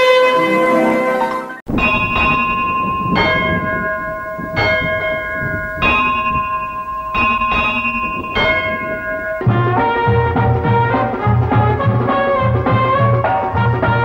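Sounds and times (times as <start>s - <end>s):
bell ringing: 1.7s - 9.6s.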